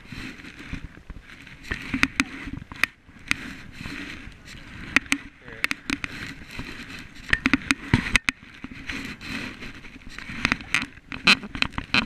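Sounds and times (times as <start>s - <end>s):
paddle splashing through water: 0.0s - 12.0s
sharp clicks and knocks: 4.8s - 9.0s, 10.1s - 12.0s.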